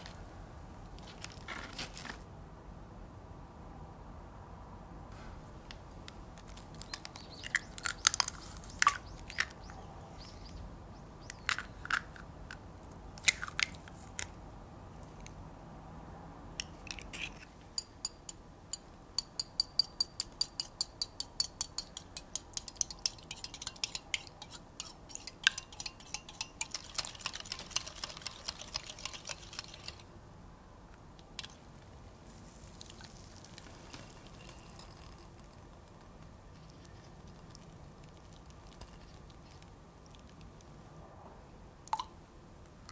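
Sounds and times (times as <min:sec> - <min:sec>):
eggs cracked on glass bowl: 0:19.2 - 0:30.0
whisk beating in glass bowl: 0:19.7 - 0:30.0
liquid poured through strainer: 0:25.4 - 0:30.0.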